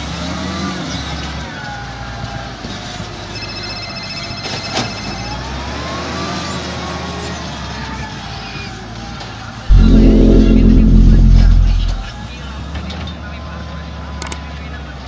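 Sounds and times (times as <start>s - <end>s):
rapidly pulsing high beep: 9.7s - 12.2s.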